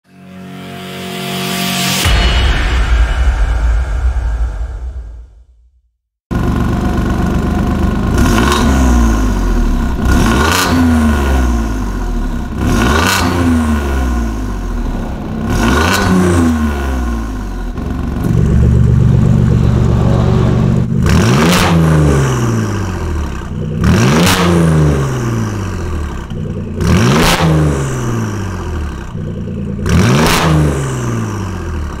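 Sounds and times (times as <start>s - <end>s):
car engine revving: 6.3s - 32.0s.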